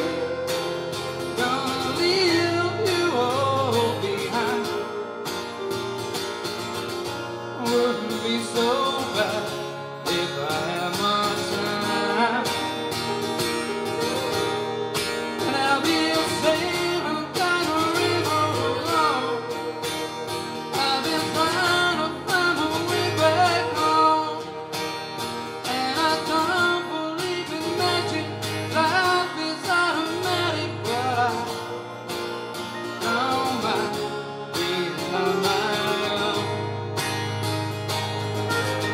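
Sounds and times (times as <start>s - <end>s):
acoustic guitar accompaniment: 0.0s - 38.9s
electric guitar lead lines: 0.0s - 38.9s.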